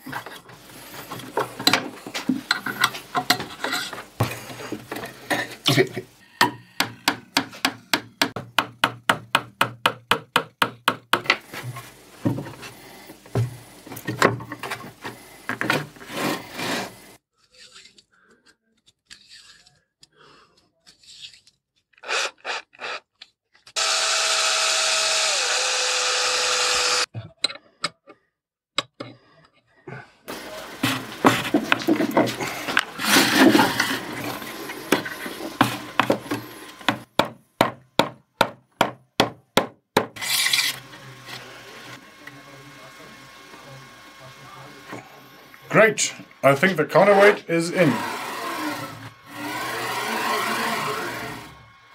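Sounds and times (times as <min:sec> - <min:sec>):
rods scraping and knocking in wood: 0:00.0 - 0:05.6, 0:11.2 - 0:17.0, 0:30.3 - 0:37.1
small power tool running: 0:23.8 - 0:27.1, 0:30.3 - 0:37.1, 0:40.2 - 0:51.9.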